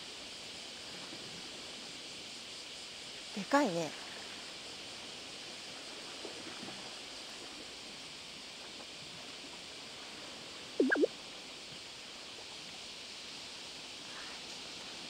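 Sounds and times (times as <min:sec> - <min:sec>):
wind and sea hiss: 0:00.0 - 0:15.0
squeaky swooping sound: 0:10.8 - 0:11.1.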